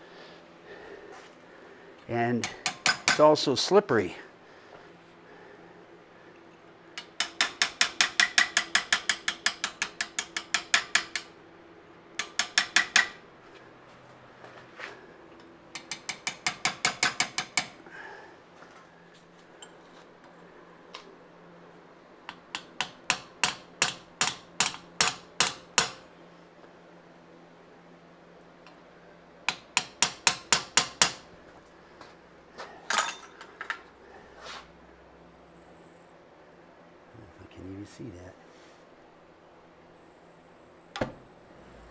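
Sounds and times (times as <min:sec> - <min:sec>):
hammer striking steel chisel: 0:02.4 - 0:03.3, 0:07.0 - 0:11.3, 0:12.2 - 0:13.2, 0:15.8 - 0:17.8, 0:22.3 - 0:26.0, 0:29.5 - 0:31.2
light metallic clinks and scrapes: 0:19.2 - 0:20.1, 0:32.7 - 0:33.9.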